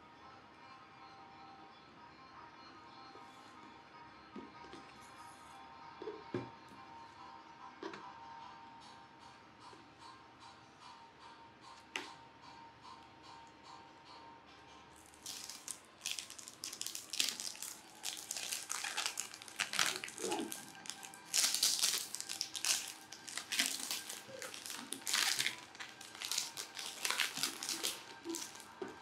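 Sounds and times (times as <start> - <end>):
plastic shrink wrap crinkling: 15.0 - 28.8.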